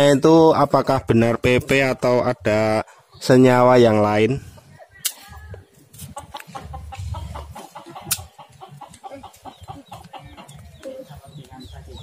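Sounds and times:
chickens clucking: 1.7s - 12.0s.

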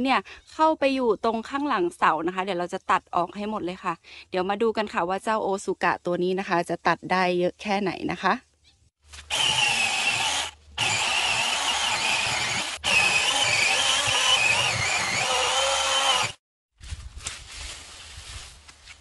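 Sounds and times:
mini chainsaw cutting branches: 9.1s - 16.4s.

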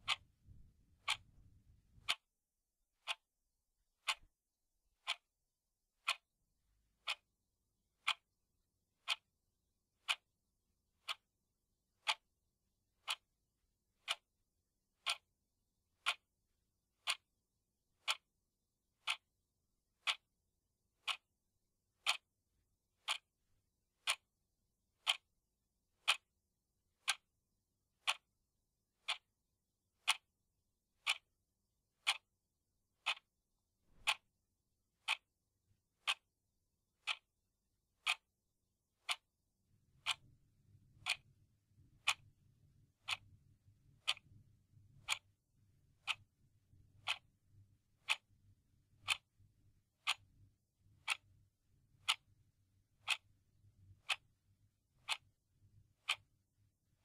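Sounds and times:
clock ticking: 0.0s - 2.3s, 3.0s - 3.3s, 3.9s - 4.4s, 5.0s - 5.3s, 6.0s - 6.3s, 6.9s - 8.4s, 9.0s - 9.3s, 9.9s - 11.3s, 11.9s - 12.4s, 13.0s - 13.3s, 13.9s - 14.3s, 14.9s - 15.3s, 15.9s - 18.4s, 19.0s - 20.3s, 21.0s - 23.4s, 24.0s - 24.4s, 25.0s - 25.3s, 25.9s - 26.3s, 26.9s - 28.4s, 29.0s - 29.4s, 30.0s - 31.4s, 32.0s - 33.3s, 33.9s - 34.3s, 35.0s - 35.3s, 36.0s - 36.3s, 37.0s - 37.4s, 38.0s - 38.3s, 39.0s - 39.3s, 40.0s - 40.3s, 40.9s - 41.3s, 42.0s - 45.4s, 46.0s - 46.3s, 46.9s - 47.3s, 47.9s - 49.4s, 50.0s - 54.4s, 55.0s - 55.4s, 56.0s - 56.4s.

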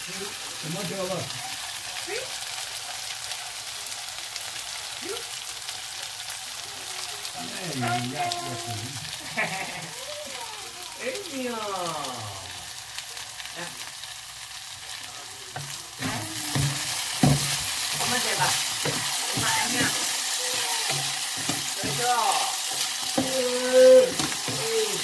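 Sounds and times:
potatoes sizzling in frying pan: 0.0s - 25.0s
wooden spatula scraping pan: 15.6s - 22.0s.

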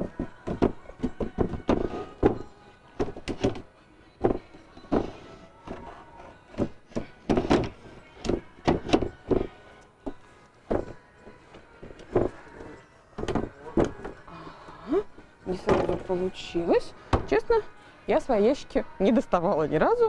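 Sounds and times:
drawer thunking against bed frame: 6.6s - 9.5s.

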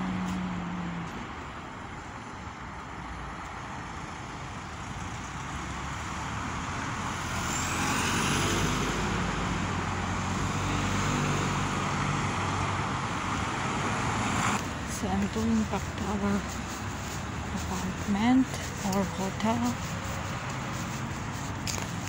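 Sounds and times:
road hiss: 0.0s - 22.0s
vehicle passing by: 5.1s - 22.0s.

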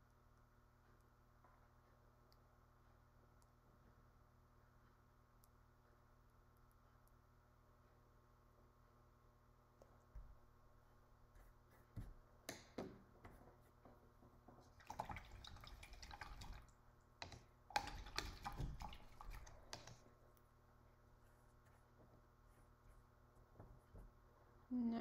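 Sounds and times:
paintbrush swishing in water: 14.6s - 16.7s, 17.8s - 20.3s.

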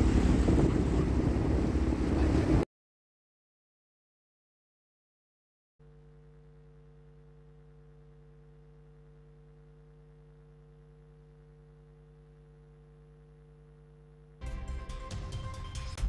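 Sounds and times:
faint electrical hum: 5.8s - 14.4s.

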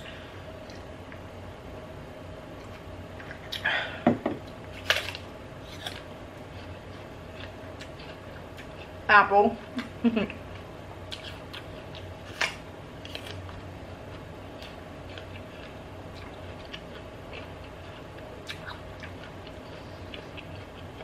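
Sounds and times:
low background hum: 0.0s - 21.0s
person chewing an apple: 4.5s - 9.0s, 10.5s - 21.0s.

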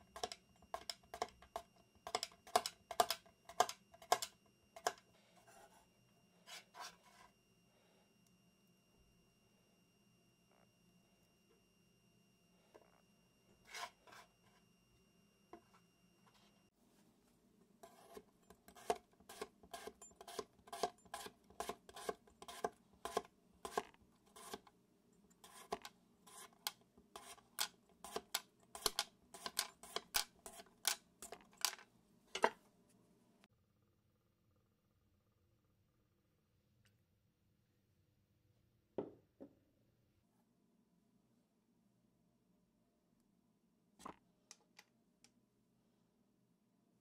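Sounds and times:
knife slicing potato on board: 17.8s - 24.7s, 25.4s - 31.0s.

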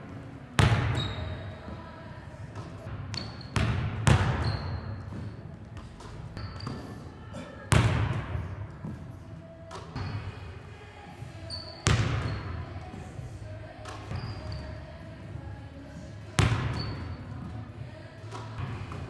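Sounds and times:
basketball hitting hard surfaces: 0.6s - 1.5s, 2.5s - 6.9s, 7.7s - 9.0s, 11.8s - 12.5s, 16.4s - 17.5s
sneaker squeaks on hardwood: 0.7s - 1.9s, 2.6s - 7.0s, 11.4s - 12.7s, 13.9s - 14.8s, 16.5s - 17.5s.

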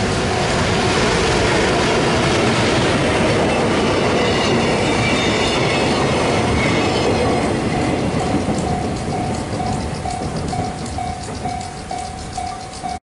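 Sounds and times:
train wheels rumbling on rails: 0.0s - 13.0s
high wheel squeals: 2.7s - 13.0s.

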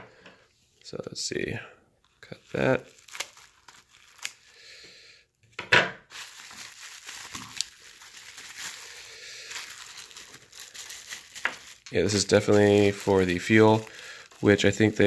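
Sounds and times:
bubble wrap crinkling: 2.0s - 4.7s, 6.1s - 15.0s
scissors cutting plastic wrap: 2.5s - 4.5s, 6.2s - 8.9s, 9.5s - 14.9s.

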